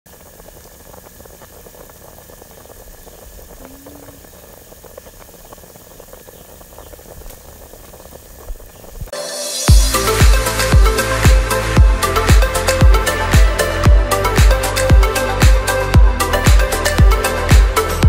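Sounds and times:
water boiling with pops: 0.1s - 9.2s.

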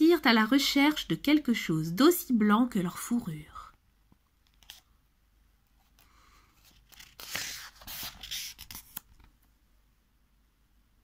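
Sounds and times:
book page turning: 4.5s - 4.9s, 5.8s - 9.3s.

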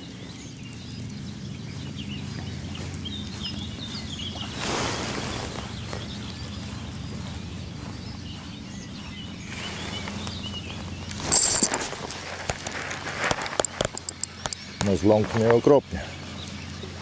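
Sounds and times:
bird calls: 0.0s - 17.0s
low steady hum: 0.0s - 17.0s
fish splash: 4.3s - 5.7s
fishing reel sharp clicks: 13.5s - 14.6s.

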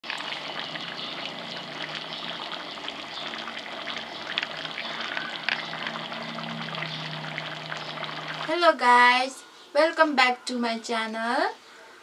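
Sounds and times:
curry bubbling and popping: 0.0s - 8.9s
faint low hum: 0.2s - 12.0s.

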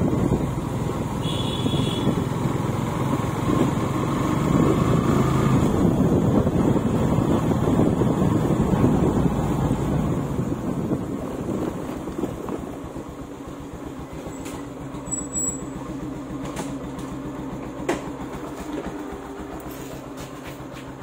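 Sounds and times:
engine idling: 5.8s - 21.0s.

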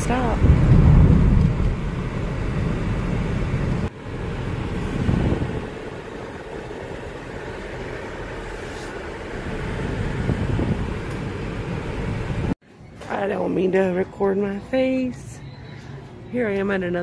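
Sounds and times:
car road noise: 0.0s - 12.6s.

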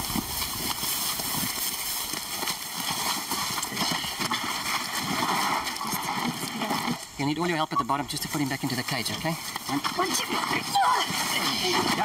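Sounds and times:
footsteps crunching through dry grass: 0.0s - 5.3s.

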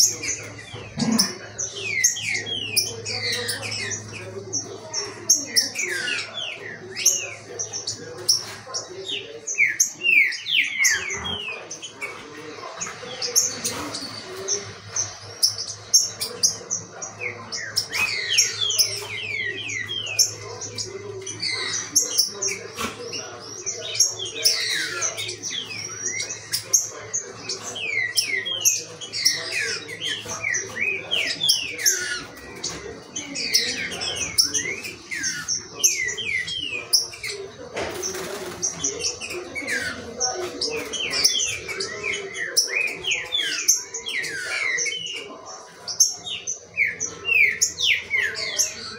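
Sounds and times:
birds singing and chirping: 0.0s - 48.9s.

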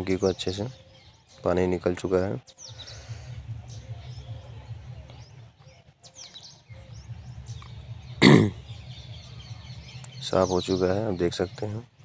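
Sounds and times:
birds chirping faintly: 0.0s - 12.0s
steady low hum: 2.3s - 5.8s
throaty grunt: 8.2s - 8.6s.

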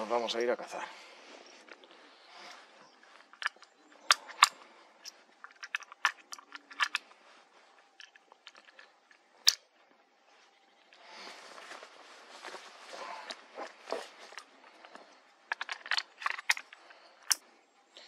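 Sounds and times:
cartridges clicking into rifle magazine: 3.3s - 7.0s.

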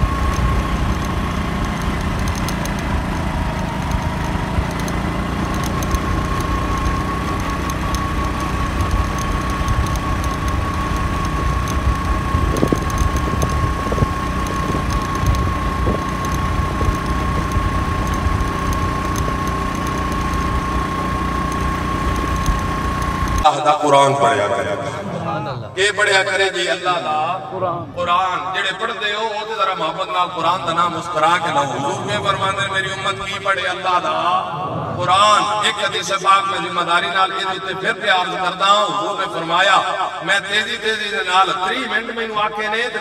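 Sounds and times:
motorcycle engine cruising: 0.0s - 23.5s
wind and road noise: 0.0s - 23.5s, 30.5s - 36.5s.

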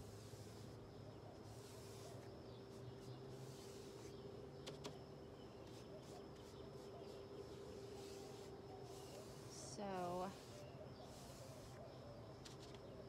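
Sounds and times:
brush swishing on metal: 0.0s - 4.2s, 5.7s - 11.9s.

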